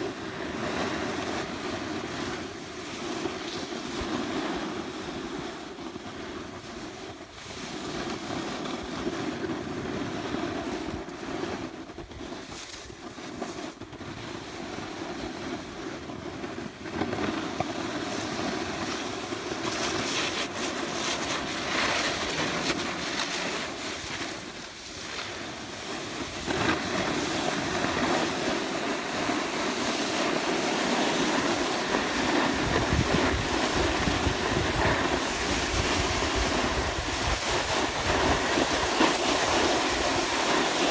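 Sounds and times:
skis scraping over snow: 0:00.0 - 0:40.9
wind buffeting microphone: 0:18.1 - 0:40.9.

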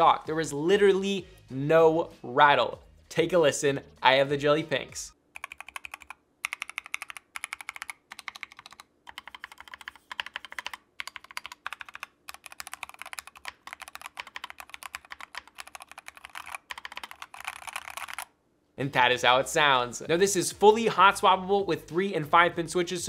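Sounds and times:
mechanical keyboard typing: 0:05.4 - 0:18.3.

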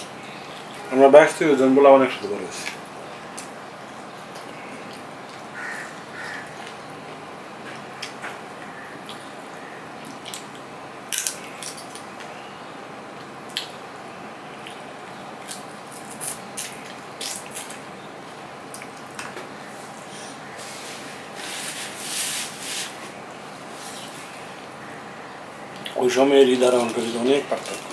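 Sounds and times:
chewing mouth sounds: 0:14.5 - 0:17.9.

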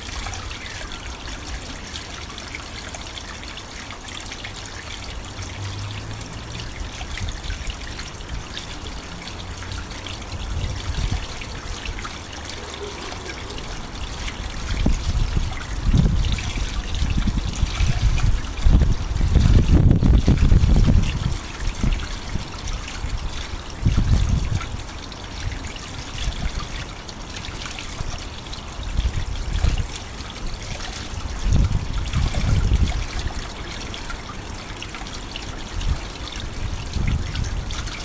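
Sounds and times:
wind buffeting microphone: 0:10.2 - 0:12.1, 0:13.6 - 0:24.8, 0:28.7 - 0:33.4, 0:35.7 - 0:38.0.

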